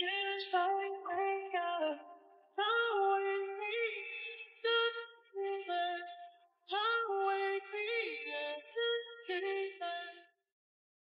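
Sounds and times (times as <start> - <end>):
high voice singing: 0.0 - 2.0.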